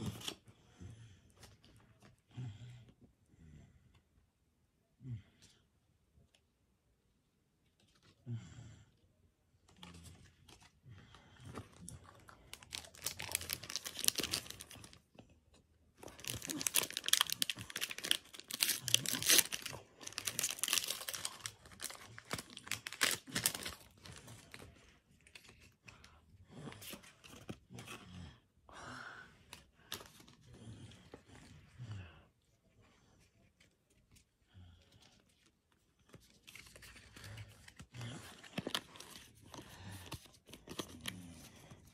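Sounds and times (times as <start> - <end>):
foil pack tearing and crinkling: 12.7 - 15.0, 16.1 - 24.0.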